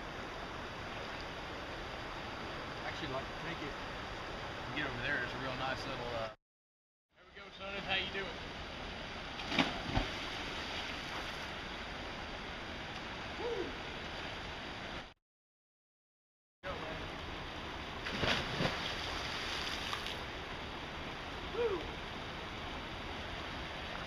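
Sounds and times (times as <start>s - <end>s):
person splashing in river: 9.4s - 11.4s, 18.0s - 20.2s.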